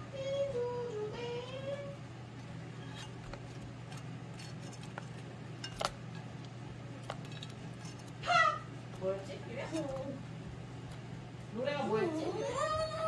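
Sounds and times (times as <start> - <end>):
woman singing: 0.0 - 2.0, 11.9 - 13.0
utensils clinking against pan: 5.6 - 6.3.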